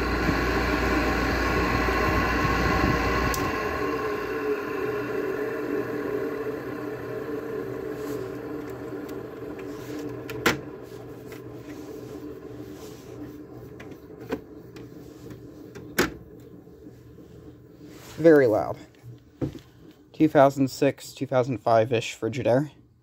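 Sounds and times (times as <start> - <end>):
air conditioner fan motor hum: 0.0 - 23.0.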